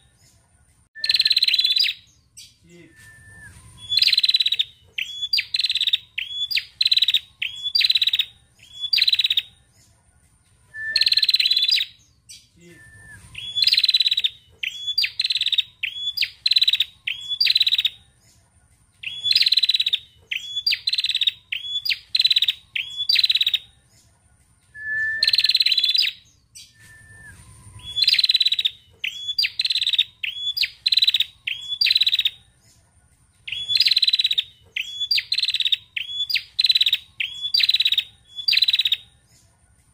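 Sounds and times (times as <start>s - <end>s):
bird chattering calls: 3.9s - 9.5s, 13.4s - 18.0s, 19.0s - 23.6s, 27.9s - 32.4s, 33.5s - 39.0s.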